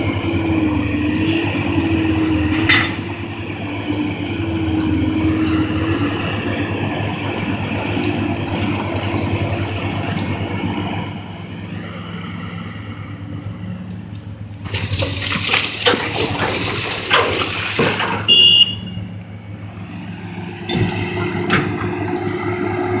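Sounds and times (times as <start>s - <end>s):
excavator diesel engine: 0.0s - 23.0s
rock pouring into truck bed: 14.6s - 18.3s.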